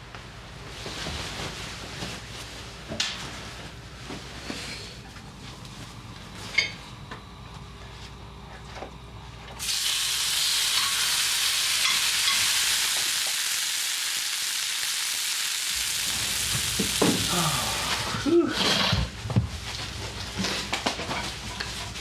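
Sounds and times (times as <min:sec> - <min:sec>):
food sizzling in frying pan: 0:09.6 - 0:18.1.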